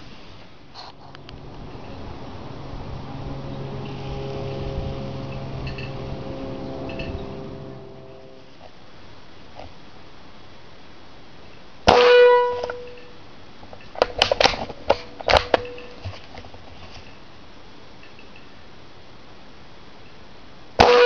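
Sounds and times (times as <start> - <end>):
metallic clang: 5.2 - 8.6, 13.9 - 16.1.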